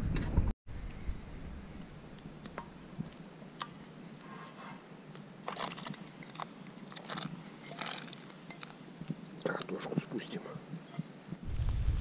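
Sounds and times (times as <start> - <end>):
campfire crackling and popping: 5.0 - 12.0.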